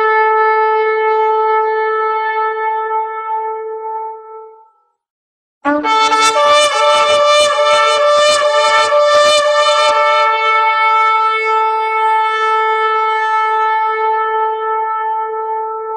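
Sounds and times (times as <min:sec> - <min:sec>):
shofar blowing: 0:05.7 - 0:15.9.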